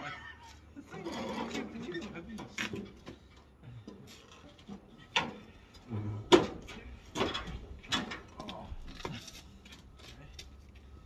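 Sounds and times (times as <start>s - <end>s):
sharp metal clunks and knocks: 6.3s - 8.3s.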